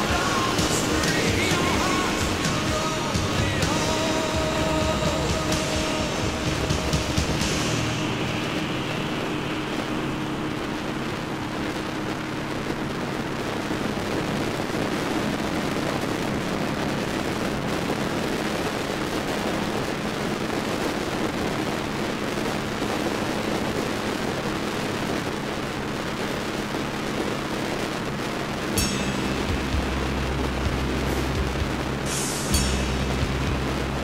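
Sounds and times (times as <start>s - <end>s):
motorcycle engine running: 0.0s - 17.0s, 28.6s - 34.0s
wind rush over microphone: 0.0s - 34.0s.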